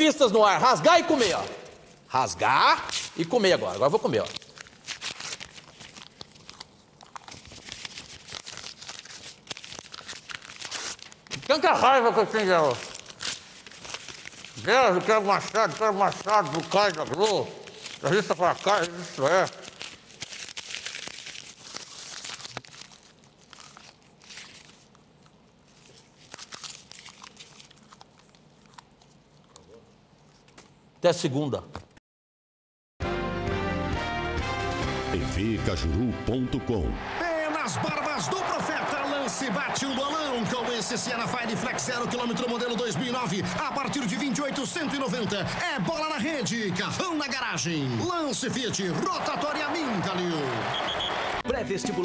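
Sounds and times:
paper ripping and crumpling: 2.7s - 29.2s.

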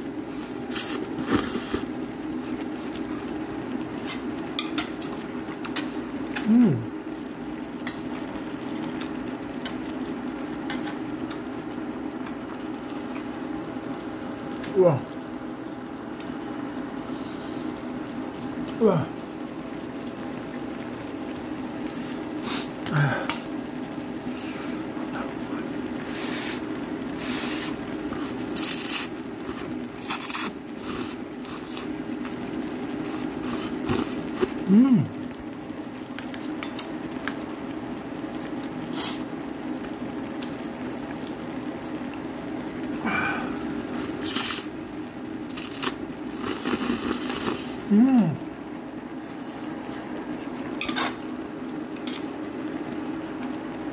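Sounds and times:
pot bubbling on stove: 0.0s - 53.9s
steady low hum: 0.0s - 53.9s
man slurping noodles: 0.4s - 2.0s, 26.1s - 31.9s, 33.1s - 35.1s, 45.6s - 48.4s.

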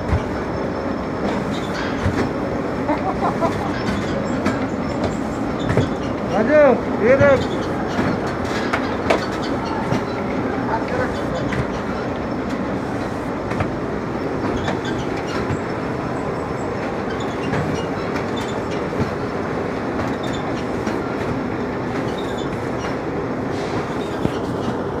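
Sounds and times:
loud mechanical rumble: 0.0s - 25.0s
sharp knocks: 3.8s - 6.1s.

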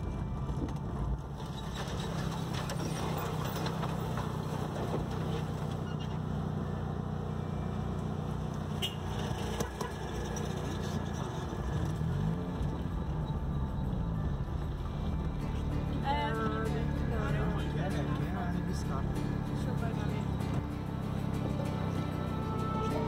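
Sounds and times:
car engine and tyre rumble: 0.0s - 23.0s.

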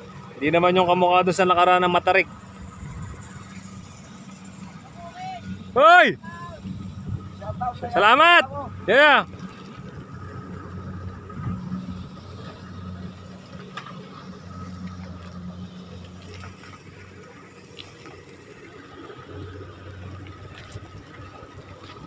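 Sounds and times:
hand carts rolling over mud: 12.3s - 22.0s.

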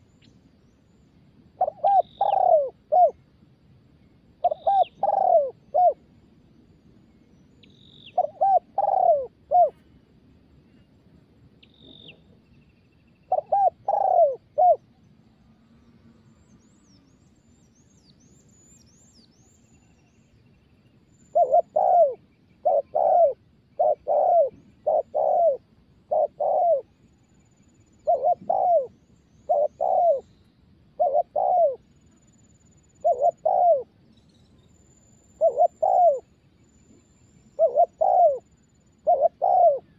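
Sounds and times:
dove cooing: 1.6s - 3.2s, 4.4s - 6.1s, 8.1s - 9.9s, 13.3s - 14.9s, 21.3s - 27.0s, 27.9s - 30.3s, 30.9s - 31.9s, 32.7s - 34.0s, 35.4s - 36.3s, 37.5s - 39.9s
small birds chirping: 1.6s - 3.2s, 4.0s - 6.0s, 15.8s - 39.9s.

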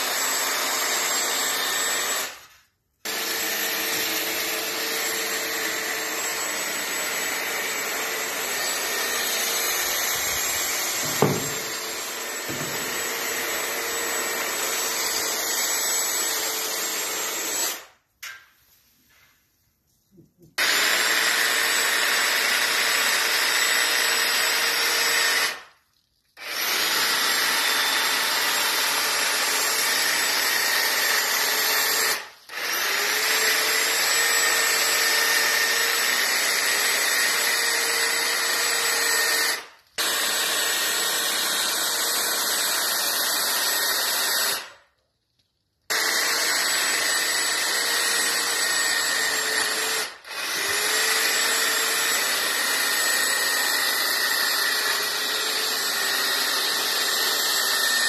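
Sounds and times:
electric hedge trimmer whining: 0.0s - 17.7s, 45.9s - 58.0s.

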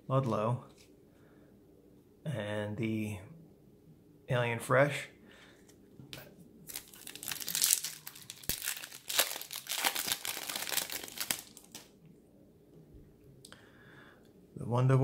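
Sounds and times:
foil wrapper crinkling: 6.7s - 11.9s.

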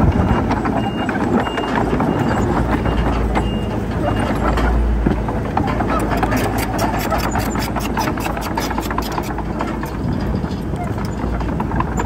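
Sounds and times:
diesel machinery engine: 0.0s - 12.0s
reversing alarm beeping: 0.1s - 4.6s
metal clanks and clicks: 0.1s - 12.0s.

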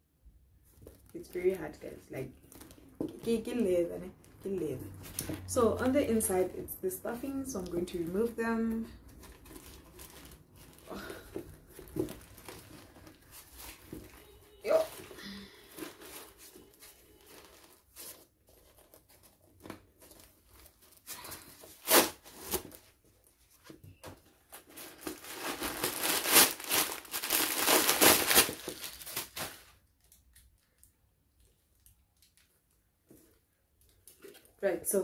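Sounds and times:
paper rustling and crumpling: 9.0s - 30.8s.

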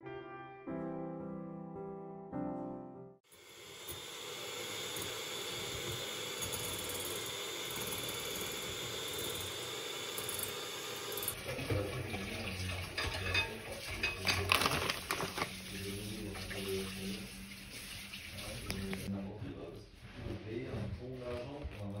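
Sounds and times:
electric hand mixer running: 3.3s - 12.0s
clatter of bowls and utensils: 11.4s - 17.2s.

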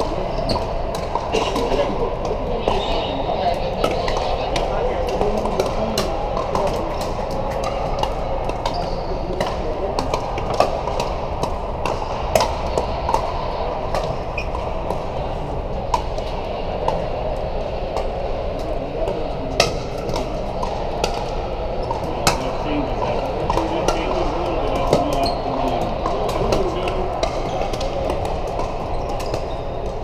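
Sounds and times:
din of voices in a hall: 0.0s - 30.0s
paddles hitting plastic balls: 19.6s - 30.0s.

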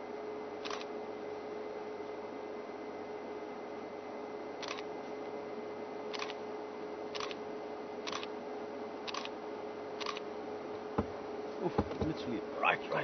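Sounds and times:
faint hum: 0.0s - 13.0s
camera shutter clicks: 0.6s - 0.9s, 4.6s - 4.9s, 6.1s - 6.4s, 7.2s - 7.4s, 8.1s - 8.3s, 9.1s - 9.4s, 10.0s - 10.2s.

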